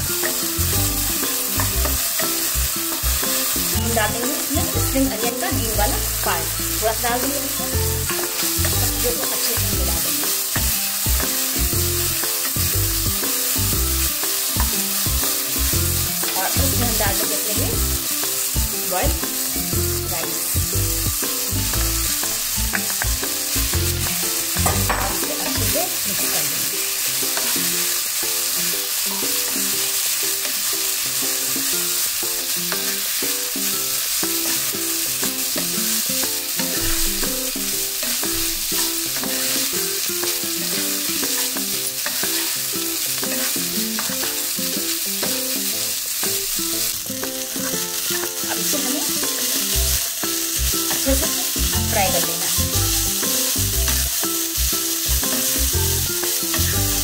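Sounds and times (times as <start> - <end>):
food sizzling in hot oil: 0.0 - 57.0
spatula scraping pan: 24.0 - 28.1, 35.3 - 44.5.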